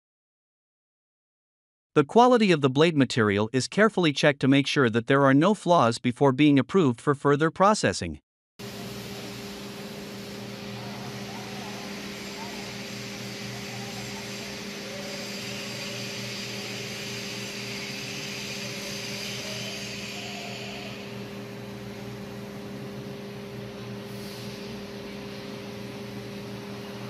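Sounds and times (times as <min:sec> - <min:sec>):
coolant hiss: 0:08.6 - 0:22.4, 0:24.0 - 0:27.0
lathe machine hum: 0:08.6 - 0:27.0.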